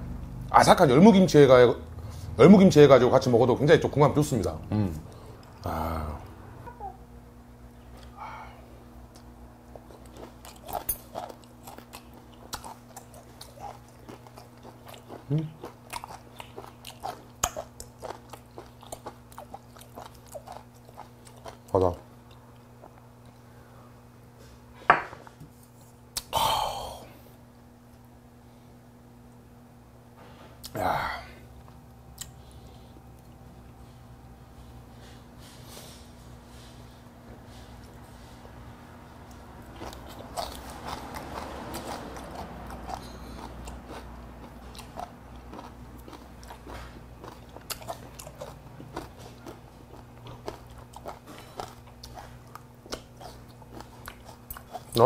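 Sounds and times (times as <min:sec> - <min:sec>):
person chewing crunchy food: 0:09.0 - 0:23.4, 0:39.1 - 0:55.0.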